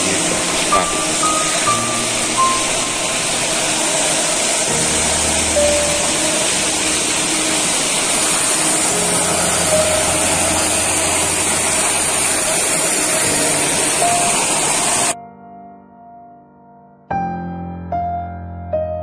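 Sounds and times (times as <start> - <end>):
aerator motor humming: 0.0 - 15.2
water splashing from paddles: 0.0 - 15.2.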